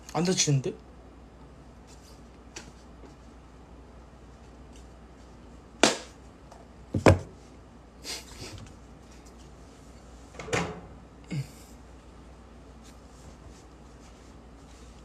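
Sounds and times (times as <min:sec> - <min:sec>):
objects knocking on hard surface: 0:07.0 - 0:07.3.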